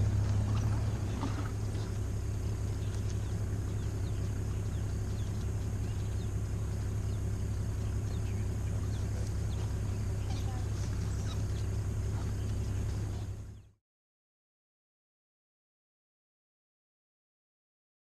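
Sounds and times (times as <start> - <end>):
engine idling hum: 0.0 - 13.8.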